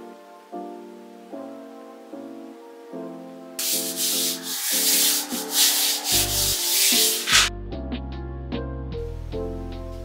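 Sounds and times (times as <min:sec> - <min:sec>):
soft background music: 0:00.0 - 0:10.0
brisk scrubbing: 0:03.6 - 0:07.5.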